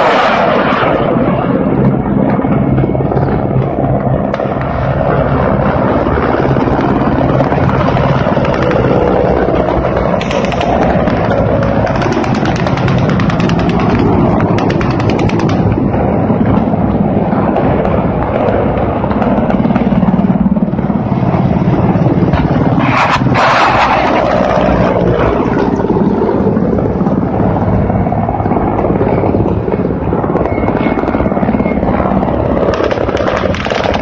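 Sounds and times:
helicopter rotor and engine drone: 0.0 - 34.0.

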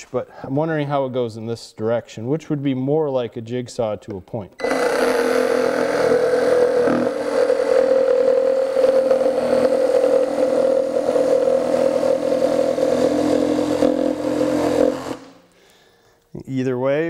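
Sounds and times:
reciprocating saw cutting plywood: 4.6 - 15.4.

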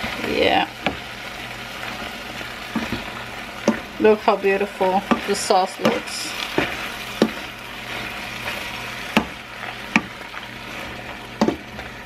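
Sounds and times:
sauce sizzling in frying pan: 0.0 - 12.0
spatula tapping pan: 2.7 - 3.9, 4.8 - 7.6, 9.0 - 10.2, 11.4 - 11.8.

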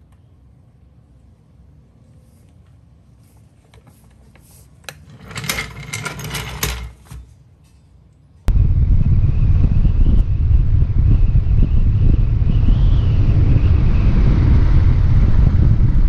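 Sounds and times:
wind on microphone: 8.5 - 16.0.

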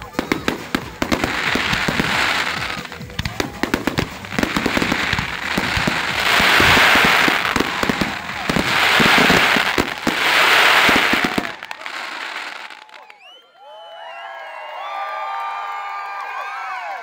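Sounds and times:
firework bursts: 0.0 - 13.0
firework crackling: 0.0 - 13.1
crowd whooping: 0.0 - 17.0.

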